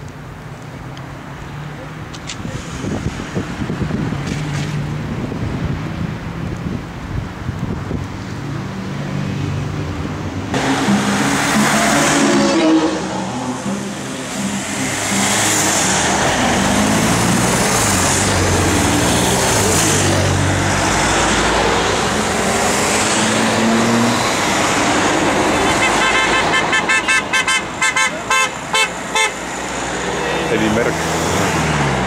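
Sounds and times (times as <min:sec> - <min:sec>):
cars driving past: 0:00.2 - 0:32.0
wind buffeting microphone: 0:02.3 - 0:08.8.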